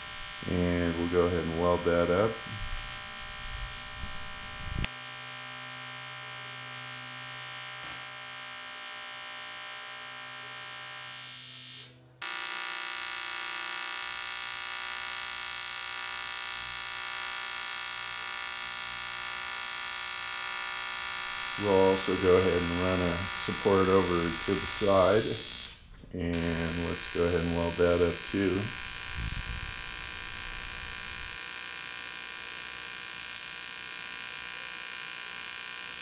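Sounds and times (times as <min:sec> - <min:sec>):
welding arc buzzing: 0:00.0 - 0:36.0
welder arc striking click: 0:26.4 - 0:33.4.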